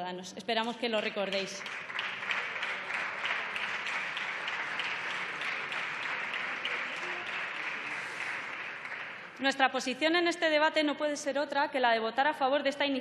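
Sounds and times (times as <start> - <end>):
many hands clapping: 0.6 - 9.7.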